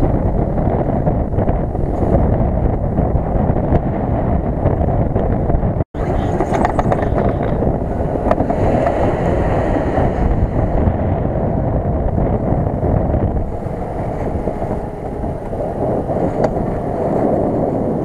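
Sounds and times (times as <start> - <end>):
wind rumble on microphone: 0.0 - 18.0
car engine under load: 6.0 - 17.0.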